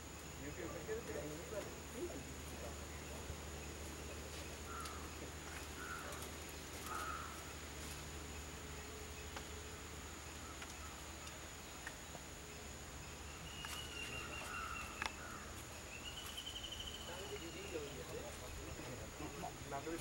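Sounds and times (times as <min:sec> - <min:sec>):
faint clicks: 0:10.6 - 0:12.0.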